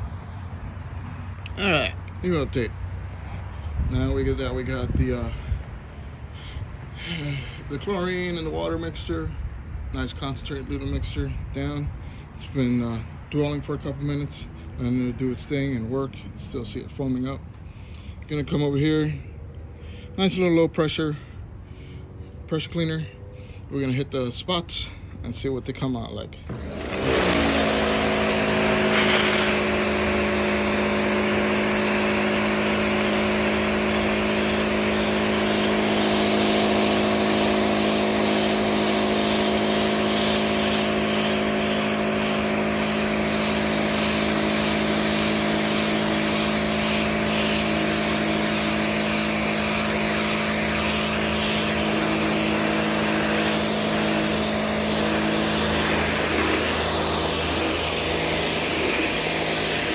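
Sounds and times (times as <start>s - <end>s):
pressure washer spraying: 26.5s - 59.9s.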